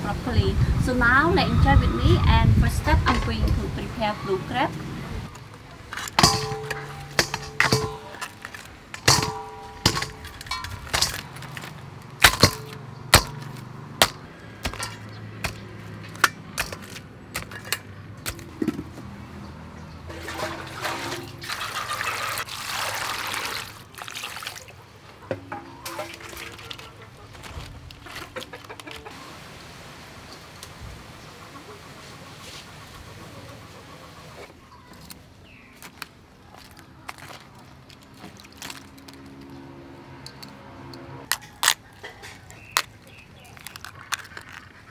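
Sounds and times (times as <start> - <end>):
crab shells clicking on metal: 5.9 - 18.5, 42.5 - 44.8
water pouring and splashing: 20.0 - 28.3.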